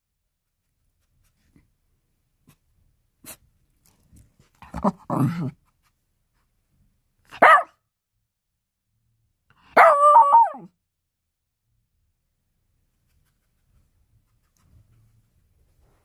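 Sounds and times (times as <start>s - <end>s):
small dog grumbling: 4.6s - 5.6s
dog bark-howl: 7.3s - 7.8s, 9.6s - 10.7s
small dog barking: 7.3s - 7.8s, 9.7s - 10.7s.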